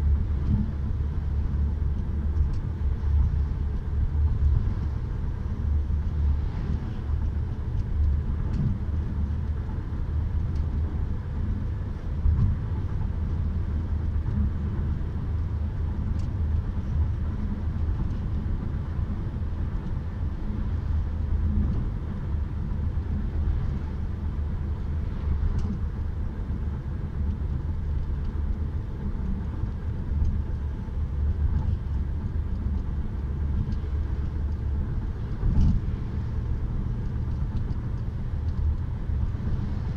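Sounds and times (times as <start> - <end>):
car cabin road noise rumble: 0.0 - 39.9.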